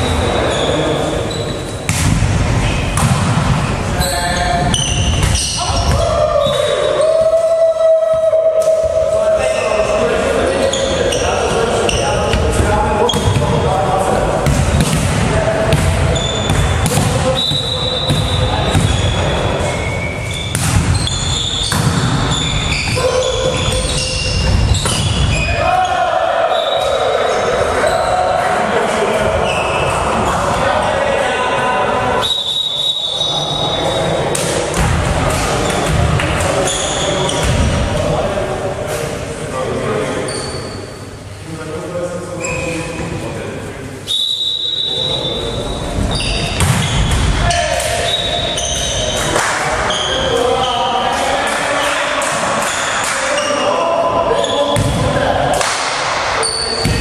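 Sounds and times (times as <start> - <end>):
sneakers squeaking: 0.0 - 28.5, 29.1 - 30.2, 32.2 - 37.8, 40.2 - 41.1, 42.4 - 43.0, 44.1 - 55.4, 56.3 - 57.0
voices: 0.0 - 57.0
volleyball struck: 1.8 - 3.7, 4.7 - 6.2, 14.4 - 22.8, 46.5 - 48.0, 54.7 - 57.0.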